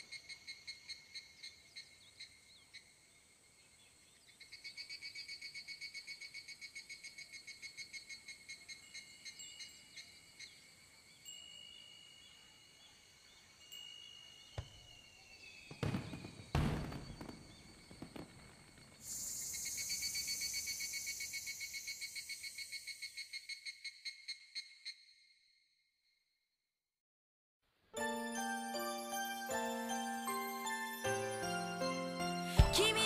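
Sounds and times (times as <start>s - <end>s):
insects chirping: 0.0s - 25.7s
hissing insect chorus: 4.4s - 24.3s
fireworks booms: 14.6s - 19.4s.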